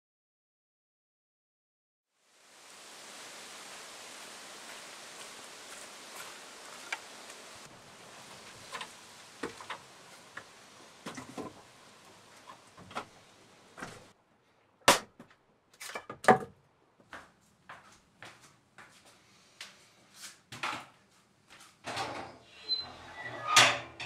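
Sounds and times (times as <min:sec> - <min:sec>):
faint outdoor hiss: 0:02.1 - 0:14.9
footsteps: 0:04.5 - 0:14.2, 0:17.0 - 0:21.8
wooden knocks and clunks: 0:10.4 - 0:11.7, 0:15.9 - 0:16.6.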